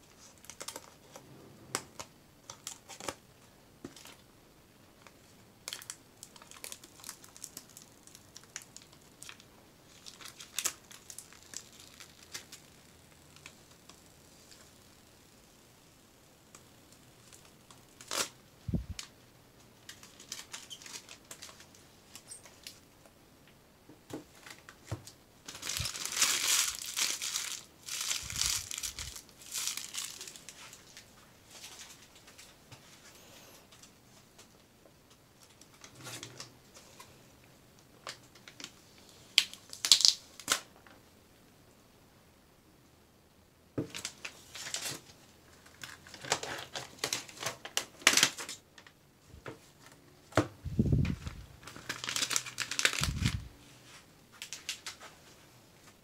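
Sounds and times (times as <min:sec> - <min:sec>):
plastic packaging crinkling: 0:00.1 - 0:01.2, 0:01.8 - 0:03.2, 0:05.0 - 0:14.7, 0:17.2 - 0:19.1, 0:19.8 - 0:22.8, 0:24.3 - 0:32.5, 0:38.0 - 0:40.7, 0:43.9 - 0:48.6, 0:50.8 - 0:55.1.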